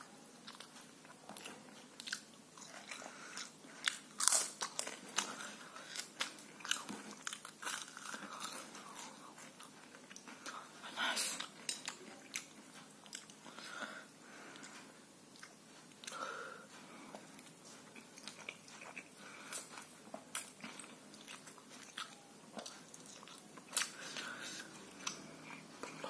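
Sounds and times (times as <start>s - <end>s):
person crunching crispy food: 2.0s - 9.2s.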